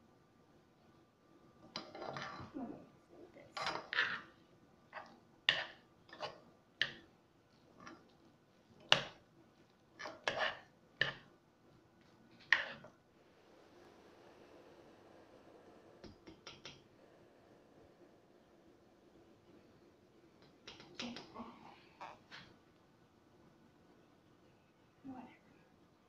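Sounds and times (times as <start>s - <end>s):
spatula scraping metal saucepan: 10.0s - 10.7s.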